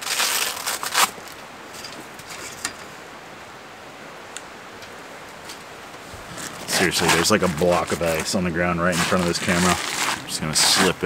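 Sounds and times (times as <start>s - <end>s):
awning fabric rustling and rattling: 6.1s - 11.0s.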